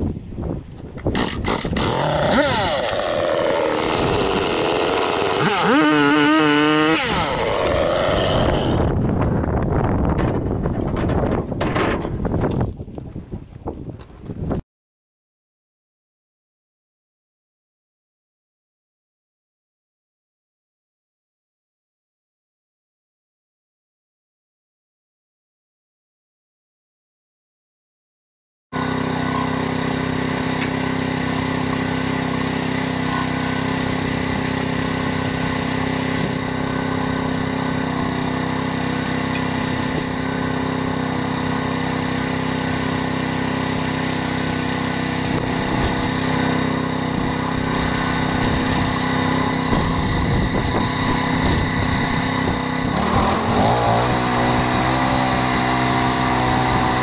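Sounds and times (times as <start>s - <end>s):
band saw cutting log: 1.0s - 9.0s, 28.8s - 57.0s
petrol engine running: 28.8s - 57.0s.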